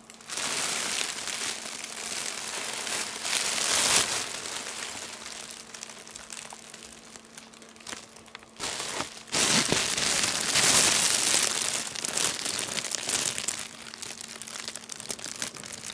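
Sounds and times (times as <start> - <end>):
fabric tunnel rustling and crackling: 0.0 - 15.9.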